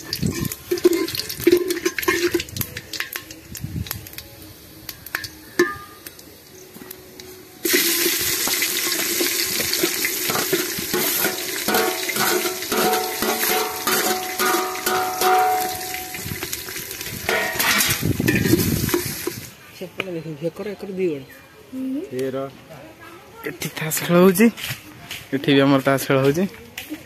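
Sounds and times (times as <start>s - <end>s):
steel spoon clinking and scraping: 0.0s - 3.3s, 10.3s - 16.1s, 17.3s - 19.4s
onions sizzling in hot oil: 0.0s - 19.6s.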